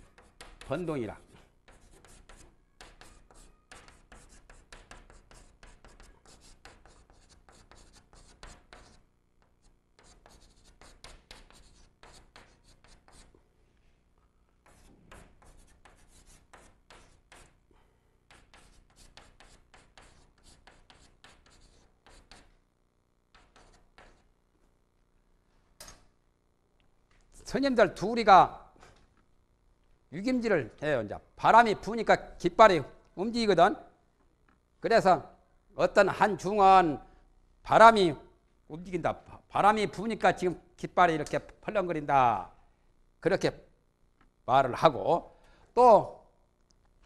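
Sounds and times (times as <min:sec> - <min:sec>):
chalk tapping and scratching: 0:00.0 - 0:13.4, 0:14.6 - 0:17.6, 0:18.3 - 0:22.5, 0:23.3 - 0:24.3.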